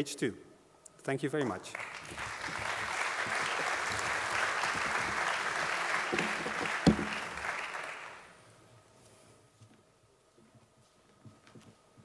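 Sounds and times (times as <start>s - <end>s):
audience applauding: 1.7s - 8.3s
sharp thump: 6.1s - 7.2s.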